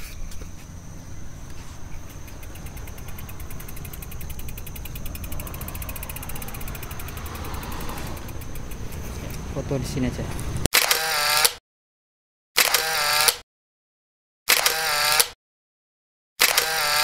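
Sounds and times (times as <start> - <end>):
rapid even ticking: 2.0 - 10.0.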